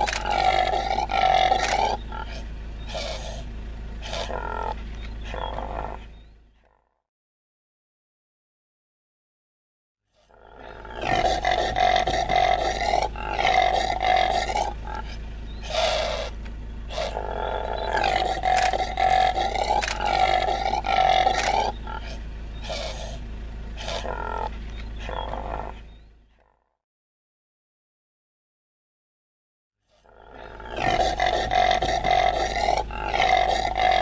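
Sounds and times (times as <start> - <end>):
steady low hum: 0.0 - 6.6, 10.4 - 26.3, 30.2 - 34.0
antelope rough calls: 0.0 - 6.8, 10.1 - 26.6, 29.9 - 34.0.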